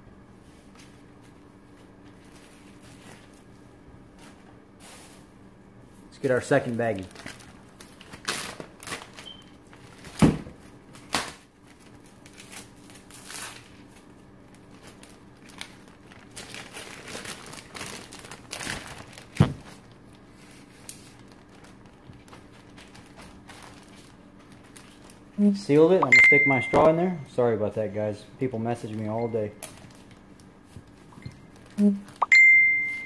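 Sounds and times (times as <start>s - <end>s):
plastic bag crinkling: 6.5s - 10.2s, 10.8s - 25.3s, 28.8s - 32.2s.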